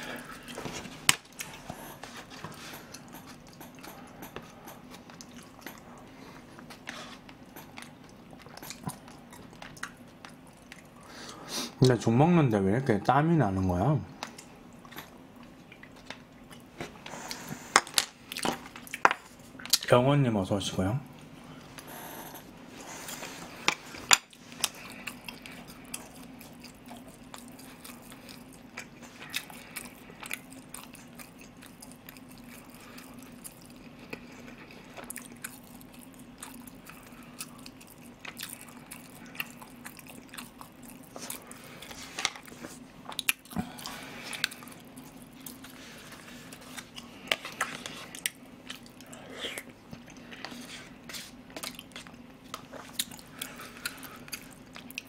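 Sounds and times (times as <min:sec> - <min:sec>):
wet chewing sounds: 0:00.0 - 0:11.4, 0:14.2 - 0:19.9, 0:21.8 - 0:55.0
steady low hum: 0:00.0 - 0:55.0.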